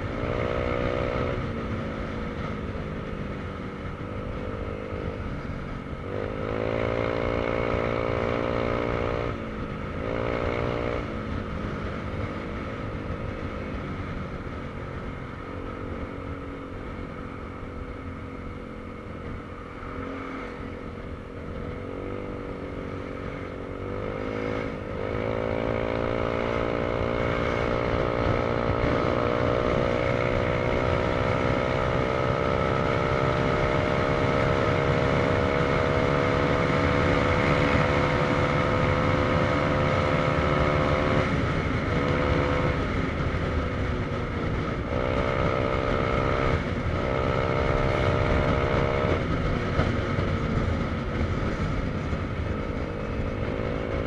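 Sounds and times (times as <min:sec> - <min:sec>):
motorcycle engine running: 0:00.0 - 0:54.0
wind noise: 0:20.4 - 0:54.0.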